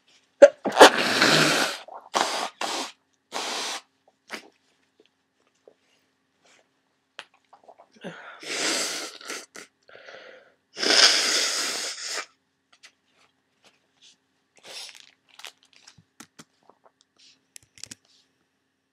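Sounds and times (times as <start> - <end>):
person sneezing: 0.4 - 4.5.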